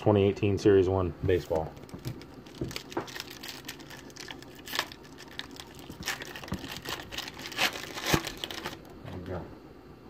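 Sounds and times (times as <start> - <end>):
foil wrapper tearing and crinkling: 1.4 - 8.9.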